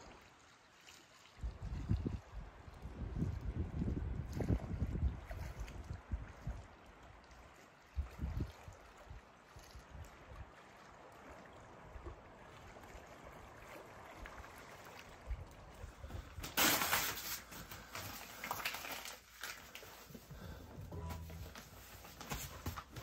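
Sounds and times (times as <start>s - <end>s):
water lapping on shore: 0.0s - 23.0s
newspaper crumpling: 16.5s - 20.1s.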